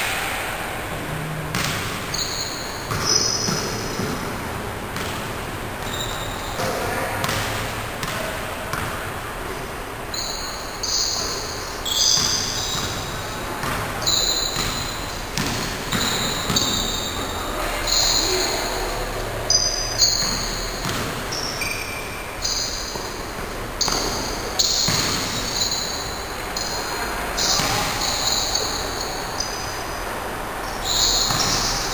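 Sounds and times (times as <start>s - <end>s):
sneakers squeaking: 0.0s - 31.9s
basketball bouncing: 0.9s - 6.6s, 7.2s - 9.6s, 10.9s - 17.1s, 19.6s - 21.9s, 22.5s - 26.0s, 27.4s - 28.7s, 31.2s - 31.8s.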